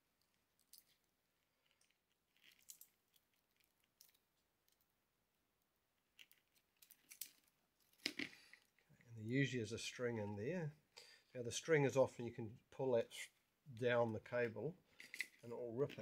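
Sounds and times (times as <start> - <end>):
faint clicks and rustles of wires: 0.0 - 5.0, 5.6 - 9.2.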